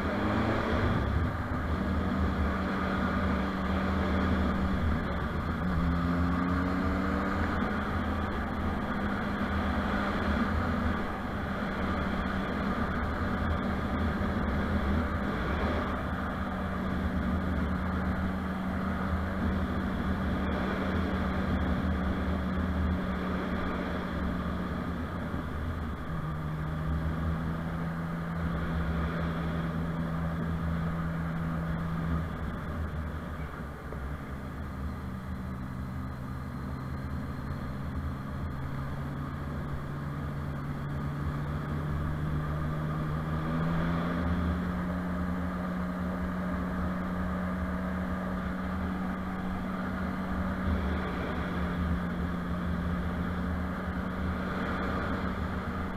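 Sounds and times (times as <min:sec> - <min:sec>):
wind and road noise: 0:00.0 - 0:55.9.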